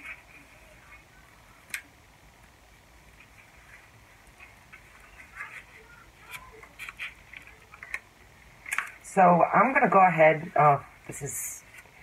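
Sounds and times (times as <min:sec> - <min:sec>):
paper rustling and crinkling: 0:03.2 - 0:08.0.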